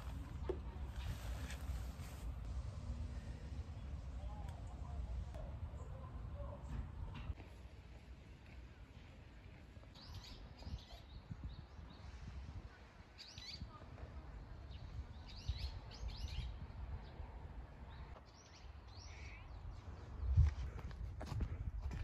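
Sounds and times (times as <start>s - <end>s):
faint low rumble: 0.0s - 9.7s
small birds chirping: 9.8s - 12.3s.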